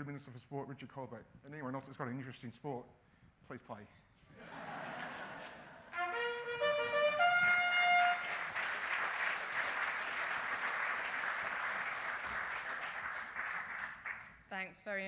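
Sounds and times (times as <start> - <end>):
audience applause: 6.8 - 14.3.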